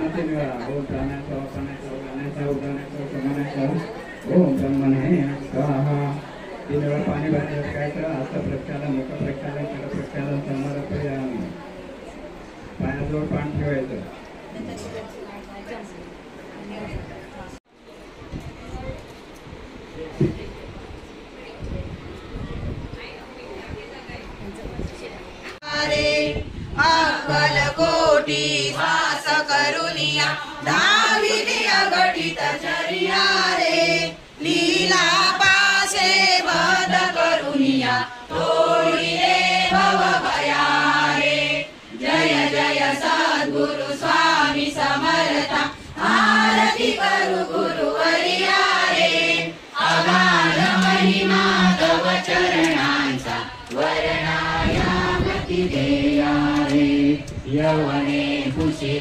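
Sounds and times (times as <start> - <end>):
group of voices chanting: 25.6 - 59.0.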